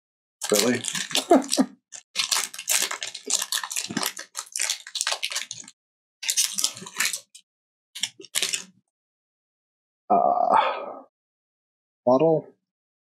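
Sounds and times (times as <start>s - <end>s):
foil pack crinkling: 0.4s - 7.4s, 8.0s - 8.7s.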